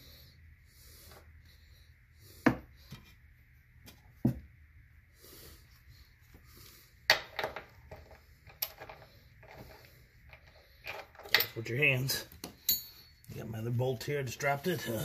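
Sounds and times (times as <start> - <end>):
wrench and bolts clinking: 10.3 - 11.8, 12.5 - 13.3.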